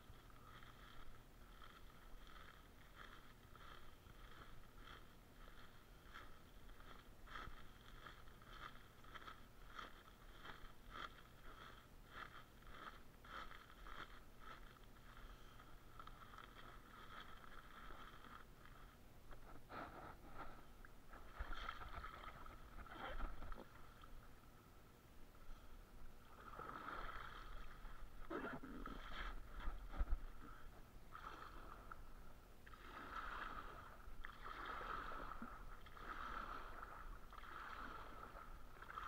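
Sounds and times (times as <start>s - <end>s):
feet stirring water: 0.0s - 19.6s, 20.3s - 24.5s, 26.0s - 39.0s
water sloshing and splashing: 15.8s - 19.6s, 20.3s - 24.4s, 26.1s - 39.0s.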